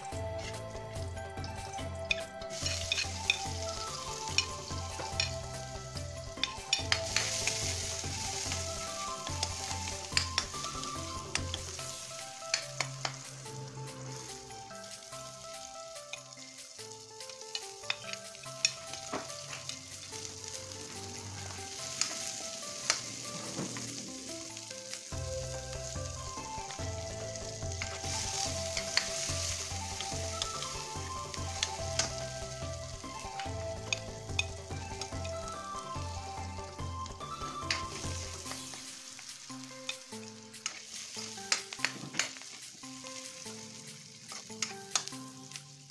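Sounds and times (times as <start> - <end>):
garlic and onion sizzling in wok: 0.0 - 45.9
soft background music: 0.0 - 45.9
metal spatula clicking on pan: 22.0 - 23.1, 44.3 - 45.7.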